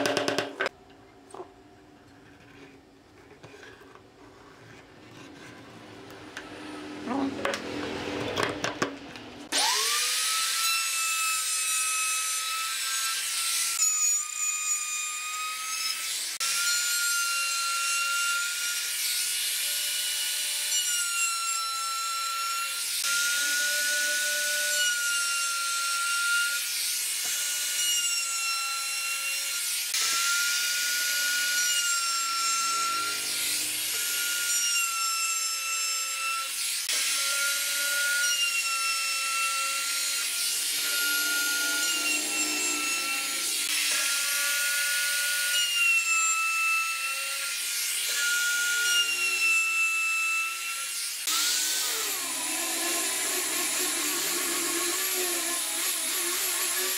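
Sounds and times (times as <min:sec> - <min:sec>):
router cutting wood: 0:09.4 - 0:56.9.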